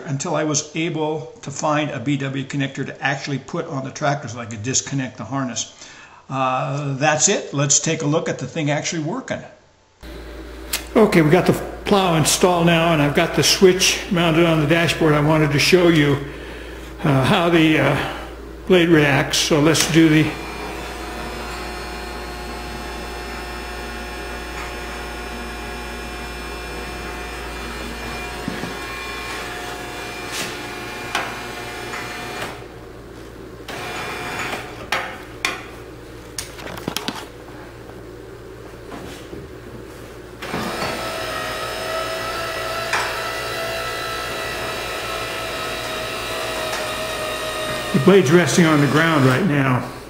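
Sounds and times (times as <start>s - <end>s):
electric pump motor whining: 10.0s - 38.0s, 40.2s - 50.0s
clicks: 10.6s - 11.0s.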